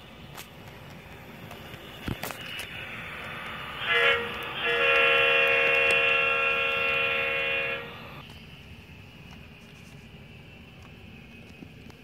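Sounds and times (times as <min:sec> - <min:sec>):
model train horn blasts: 0:03.8 - 0:08.2.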